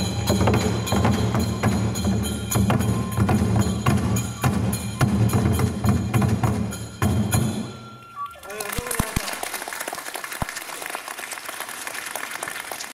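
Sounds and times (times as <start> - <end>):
drums struck with sticks: 0.0 - 7.8.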